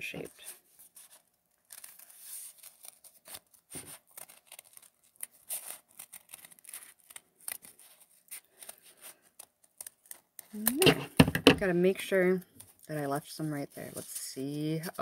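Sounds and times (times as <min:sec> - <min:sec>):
scissors snipping paper: 0:01.6 - 0:08.8.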